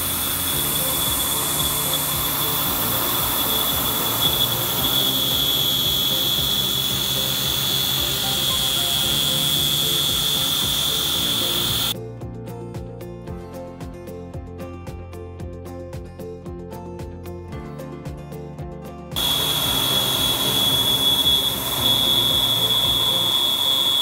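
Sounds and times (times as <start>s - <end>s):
mill cutting metal whine: 0.0s - 12.0s, 19.2s - 24.0s
background music with beat: 0.0s - 24.0s.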